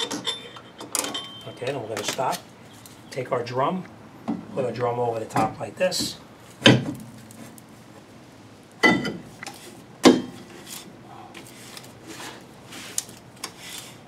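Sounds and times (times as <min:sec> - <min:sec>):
metallic clunks with ring: 0:08.8 - 0:09.2.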